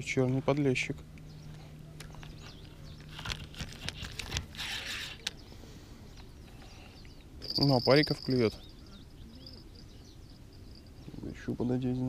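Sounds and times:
steady low hum: 0.0 - 12.0
hands handling fish and tackle: 1.2 - 5.4, 6.1 - 8.5.

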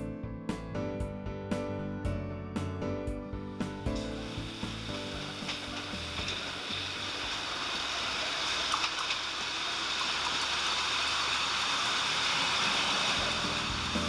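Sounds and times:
railcar running past: 3.9 - 14.0.

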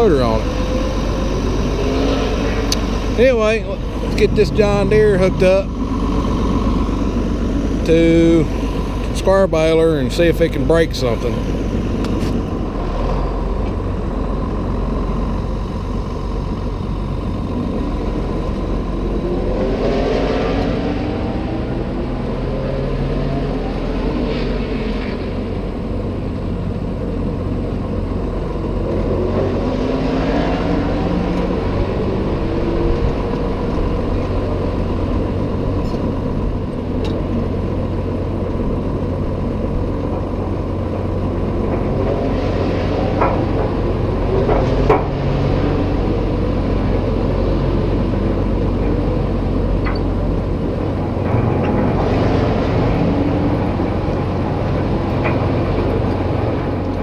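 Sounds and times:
tractor diesel engine idling: 0.0 - 19.6, 25.3 - 29.3, 31.3 - 42.3, 42.9 - 52.1.

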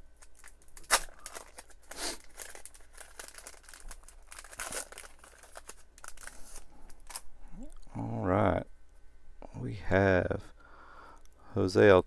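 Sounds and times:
wrapper tearing and crinkling: 0.2 - 7.3.

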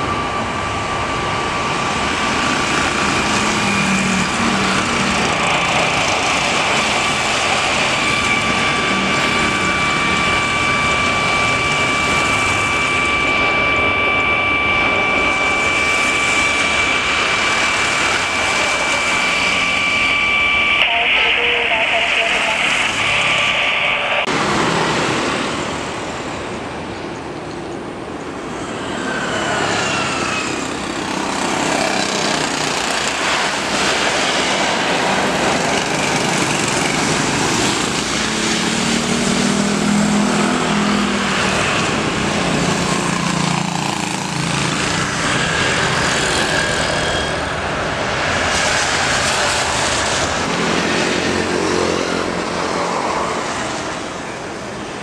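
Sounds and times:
approaching jetliner roar: 0.0 - 55.0
falling jet whine: 0.0 - 55.0
jet airliner landing roar: 0.0 - 55.0.

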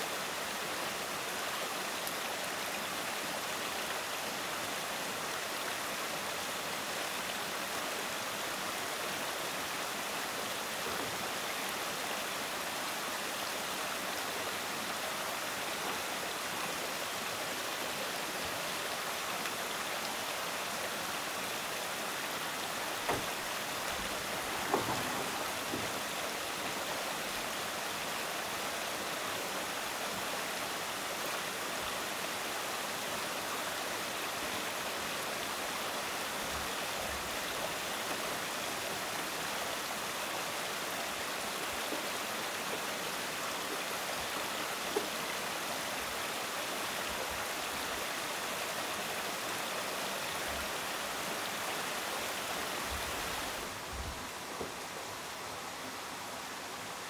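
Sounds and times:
flowing water rushing: 0.0 - 57.0
light knocks: 23.0 - 23.4, 24.6 - 26.0.

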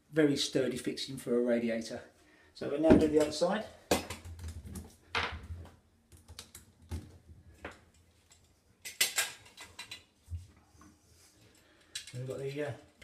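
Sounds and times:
light clicks and taps on fixings: 11.5 - 13.0.

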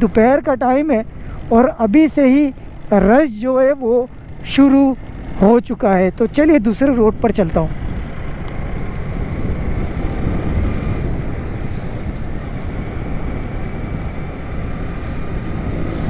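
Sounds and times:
road traffic rumble: 0.0 - 16.0
wind on microphone: 7.1 - 16.0.

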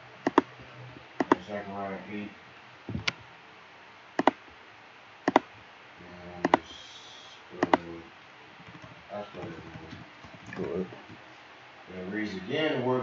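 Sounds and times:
mouse button clicks: 0.3 - 0.5, 5.3 - 5.5.

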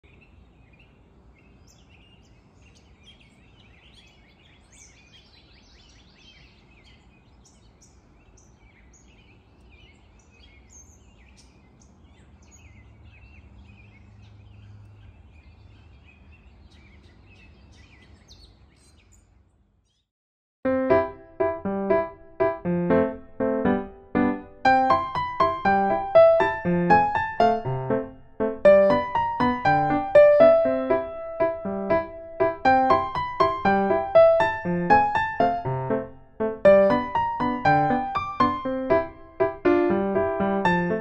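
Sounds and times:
birds chirping and singing: 0.0 - 20.1, 28.6 - 41.0.

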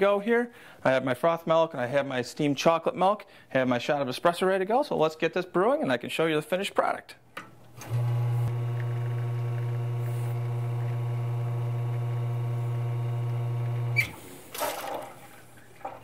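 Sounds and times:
espresso pouring: 7.8 - 14.0
espresso machine pump humming: 7.8 - 14.2.

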